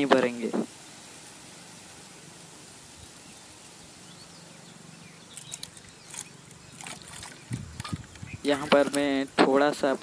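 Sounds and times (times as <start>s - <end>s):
faint outdoor background noise: 0.0s - 10.0s
water pouring into plastic bottle: 6.7s - 8.1s
water splashes: 6.7s - 9.6s.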